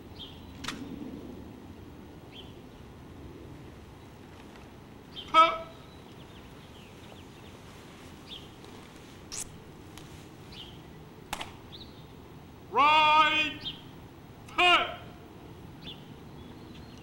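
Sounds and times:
sharp click: 0:00.6 - 0:00.9, 0:11.3 - 0:11.6
faint bird chirps: 0:15.8 - 0:17.0.

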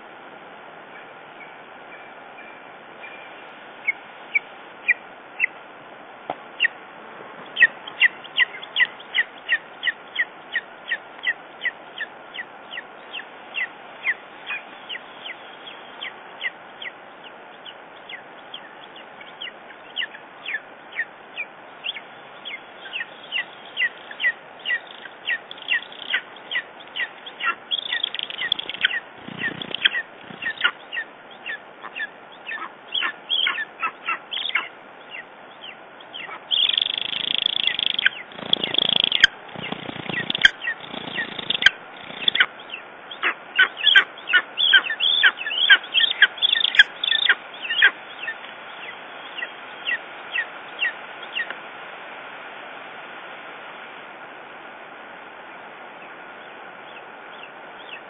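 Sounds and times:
eagle chick begging calls: 0:07.5 - 0:15.4, 0:18.1 - 0:48.4.

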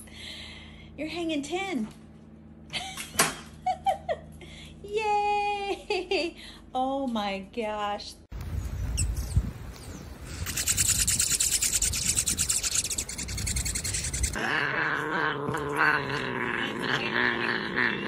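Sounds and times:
hummingbirds chirping and ticking: 0:08.5 - 0:14.4.

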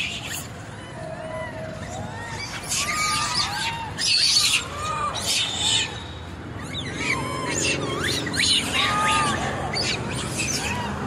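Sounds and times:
monkeys squealing and screeching: 0:00.0 - 0:11.0
monkey chirps: 0:02.4 - 0:10.9.

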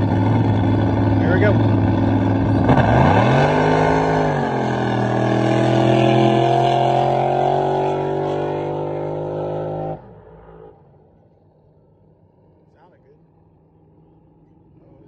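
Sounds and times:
boat engine at full throttle: 0:00.0 - 0:11.0.

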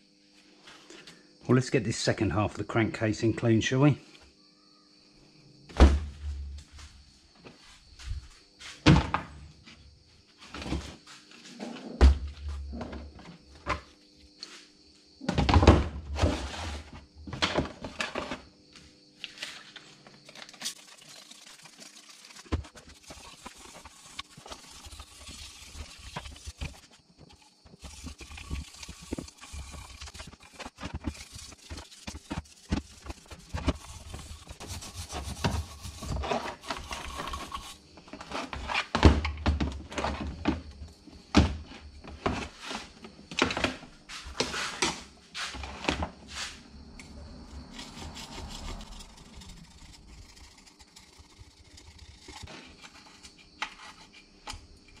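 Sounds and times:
light scraping and tapping: 0:22.5 - 0:38.7.

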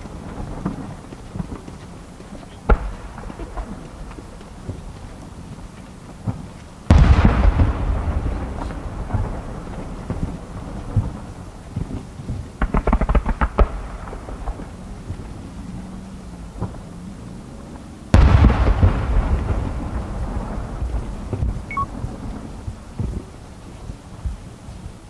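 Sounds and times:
firework sharp cracks: 0:02.6 - 0:04.8, 0:06.2 - 0:15.2, 0:18.2 - 0:22.1
firework shells booming: 0:06.2 - 0:15.2, 0:18.2 - 0:22.4.

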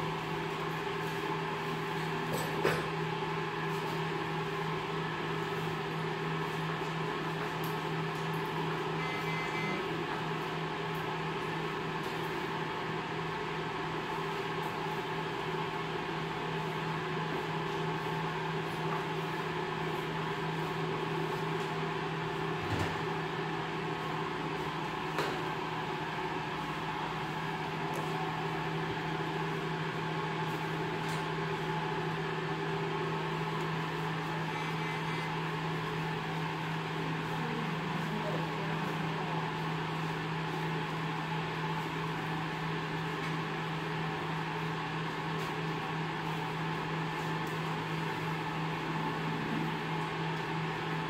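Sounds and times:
low machine hum: 0:00.0 - 0:51.0.

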